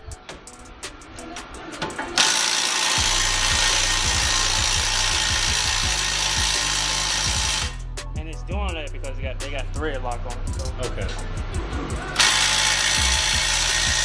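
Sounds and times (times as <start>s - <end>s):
impact wrench running: 1.8s - 7.9s, 12.2s - 14.0s.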